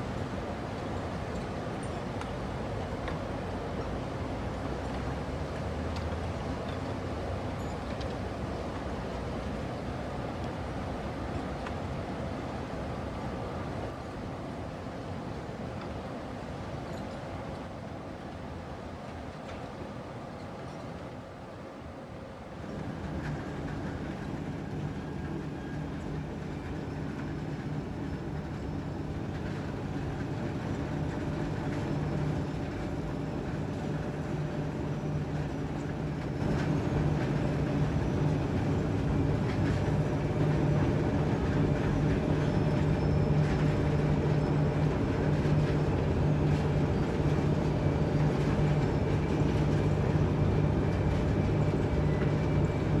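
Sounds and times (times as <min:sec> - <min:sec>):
heavy machinery low rumble: 0:00.0 - 0:53.0.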